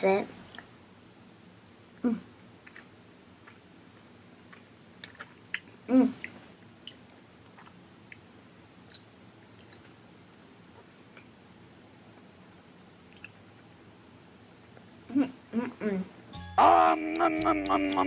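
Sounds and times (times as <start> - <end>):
child chewing with mouth clicks: 2.6 - 11.4, 13.0 - 15.0.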